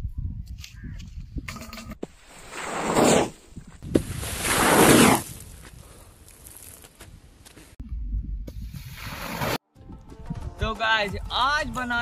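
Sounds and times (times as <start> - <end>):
bottle rocket whoosh: 4.0 - 5.5.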